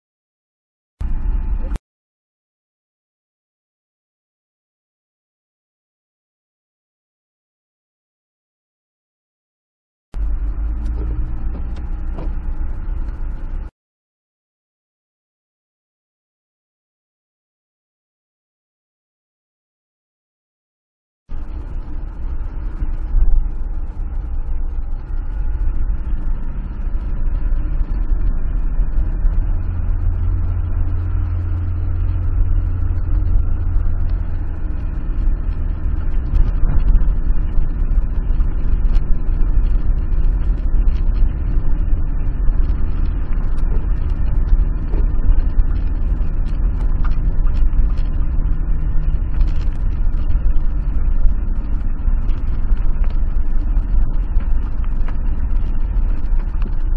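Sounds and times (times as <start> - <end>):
car engine pulling uphill: 10.2 - 13.7, 21.3 - 56.9
tyres rumbling on rough wet road: 10.2 - 13.7, 21.3 - 56.9.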